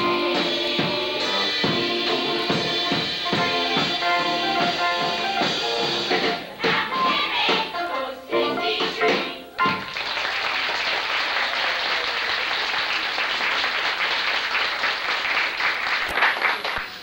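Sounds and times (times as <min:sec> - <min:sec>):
audience applauding: 0:09.7 - 0:17.0.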